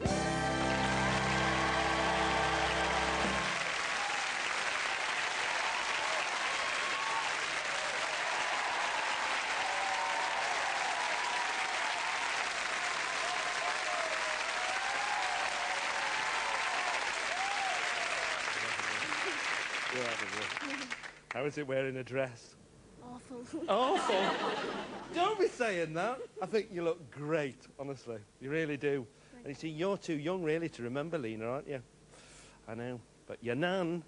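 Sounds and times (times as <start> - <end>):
audience applauding loudly: 0.0 - 21.4.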